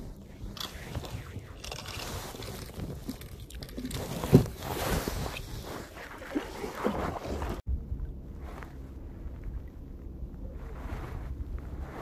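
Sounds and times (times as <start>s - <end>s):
paddle strokes swishing in water: 2.0s - 7.6s.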